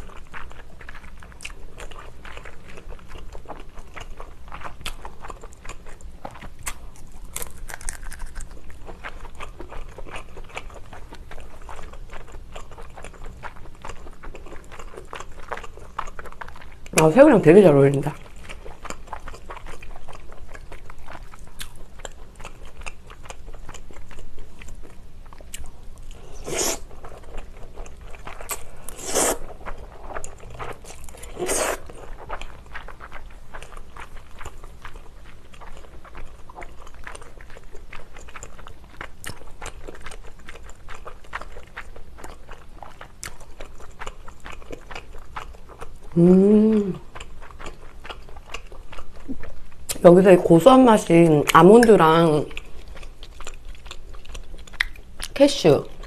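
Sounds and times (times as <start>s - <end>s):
person chewing food: 0.0s - 17.1s, 18.1s - 50.0s, 52.0s - 56.0s
person humming mm: 46.2s - 47.0s.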